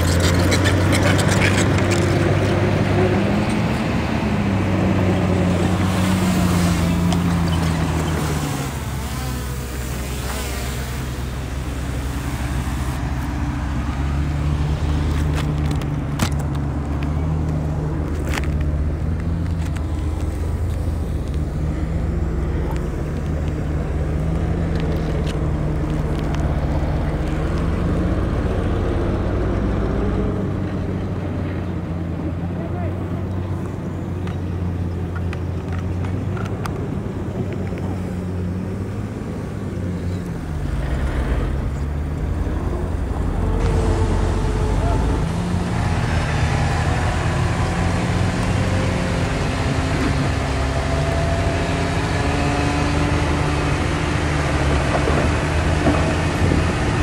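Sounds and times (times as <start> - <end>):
heavy diesel engine running: 37.4 - 57.0.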